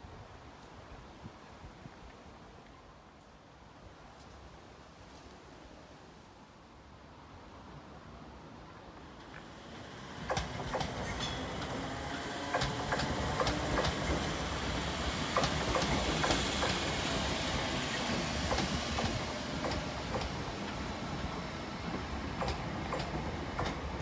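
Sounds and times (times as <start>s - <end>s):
electric train passing: 9.0s - 24.0s
wheels clicking over rail joints: 9.2s - 20.9s, 21.8s - 24.0s.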